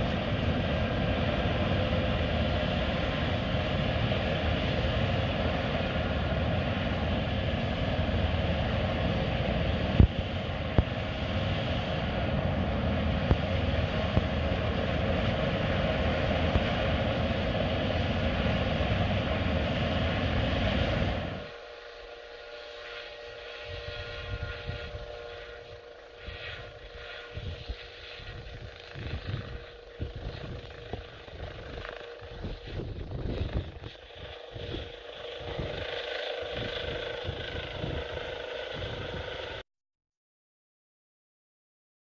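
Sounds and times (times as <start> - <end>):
helicopter turbine whine: 0.0 - 39.7
rotor downwash buffeting microphone: 26.6 - 39.6.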